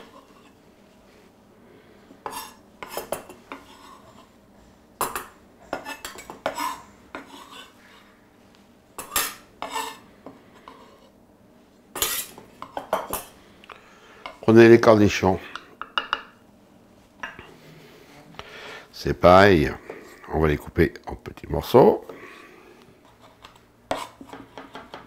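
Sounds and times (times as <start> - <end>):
knife scraping into metal bowl: 2.3 - 4.3, 5.7 - 7.8, 9.0 - 10.0, 12.0 - 12.4, 23.2 - 24.4.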